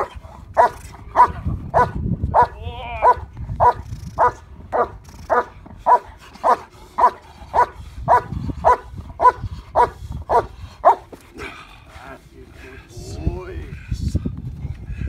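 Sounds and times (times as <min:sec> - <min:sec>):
dog barking: 0:00.0 - 0:11.0.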